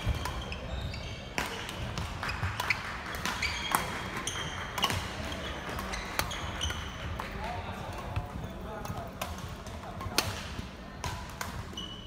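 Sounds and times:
sneakers squeaking on court: 0.0s - 7.2s, 11.6s - 12.0s
racket hitting shuttlecock: 0.0s - 12.0s.

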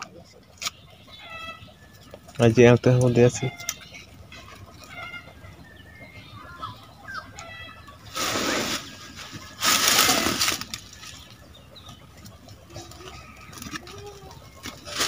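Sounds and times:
dry leaves crackling in fire: 7.4s - 15.0s.

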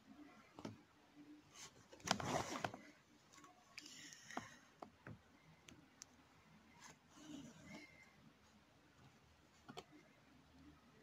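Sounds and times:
needle and thread rustling: 1.4s - 5.8s, 6.6s - 10.6s.

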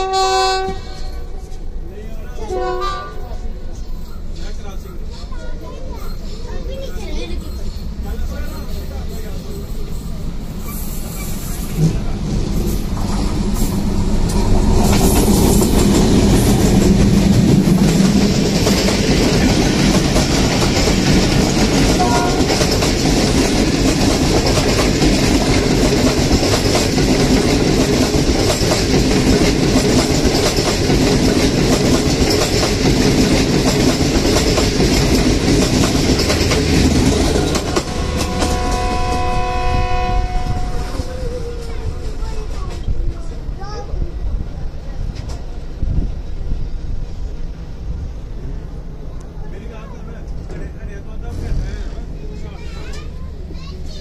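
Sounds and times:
locomotive horn: 0.0s - 1.4s, 2.5s - 3.3s, 22.0s - 22.6s, 37.6s - 41.1s
passenger train passing at speed: 0.0s - 54.0s.

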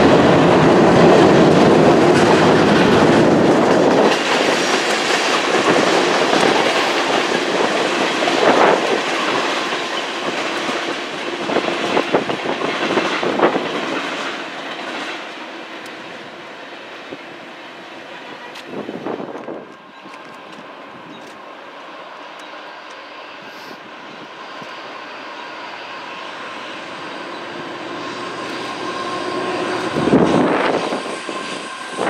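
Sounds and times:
train wheels clacking on rails: 0.0s - 17.2s, 24.1s - 32.0s
deep train rumble: 0.0s - 32.0s.

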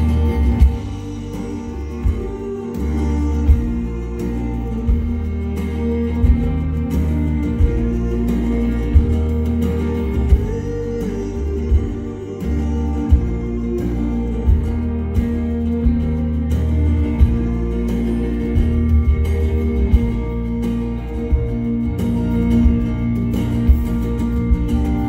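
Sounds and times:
acoustic guitar: 0.0s - 25.0s
drum hits: 0.0s - 25.0s
electric bass: 0.0s - 25.0s.

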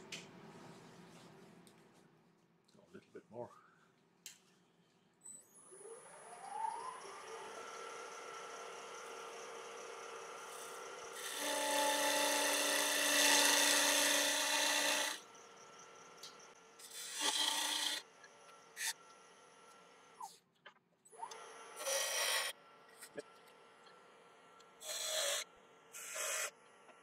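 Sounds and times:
lathe motor whining and humming: 5.8s - 15.2s
tool cutting spinning wood: 6.4s - 15.2s, 16.8s - 18.0s, 21.3s - 22.5s.

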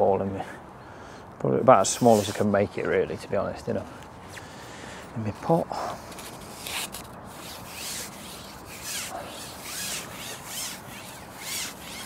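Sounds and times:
fishing pole rubbing against hands: 6.0s - 12.0s.

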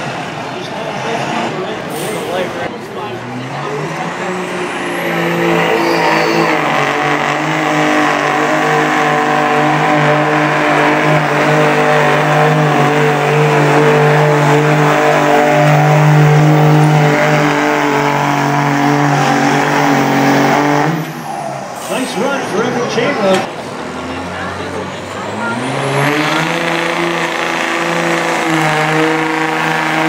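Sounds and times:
truck engine at full throttle: 0.0s - 30.0s.

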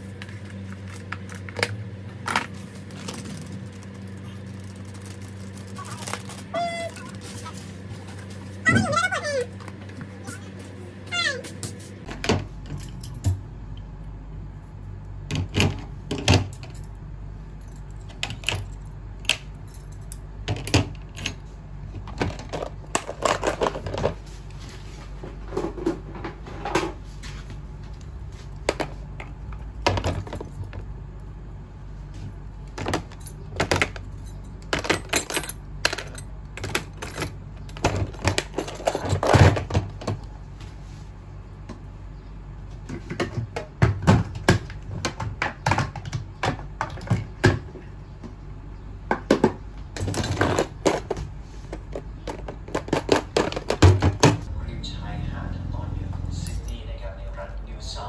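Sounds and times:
steady low hum: 0.0s - 58.0s
metal tools clinking: 33.1s - 37.8s, 56.4s - 56.8s.

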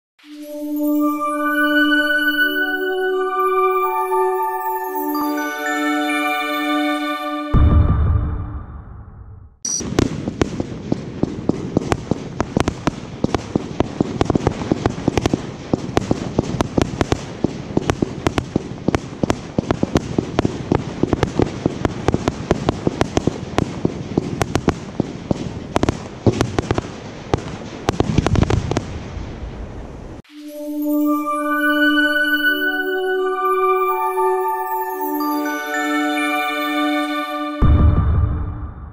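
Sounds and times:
firework cake popping: 9.8s - 29.5s.

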